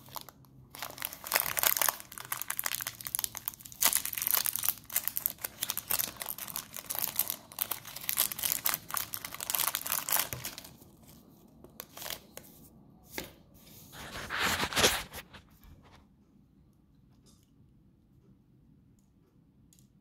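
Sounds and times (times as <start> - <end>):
wrapper crackling and tearing: 0.0 - 10.8.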